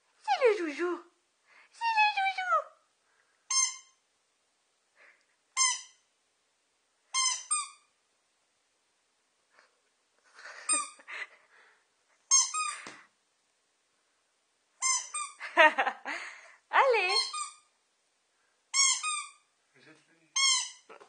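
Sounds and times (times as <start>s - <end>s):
squeaky dog toy: 3.5s - 4.0s, 5.6s - 6.0s, 7.1s - 7.9s, 10.7s - 11.0s, 12.3s - 12.9s, 14.8s - 15.4s, 17.0s - 17.7s, 18.7s - 19.5s, 20.4s - 20.9s.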